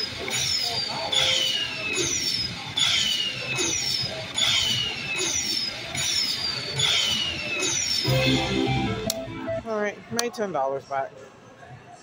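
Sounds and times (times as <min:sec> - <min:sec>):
slot machine falling electronic tone: 0:08.0 - 0:09.7.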